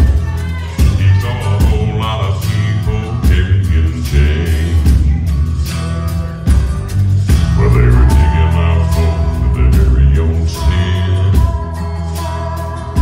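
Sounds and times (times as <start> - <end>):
band accompaniment: 0.0 - 13.0
electric bass guitar: 0.0 - 13.0
male vocal quartet singing: 0.7 - 5.2, 7.6 - 13.0.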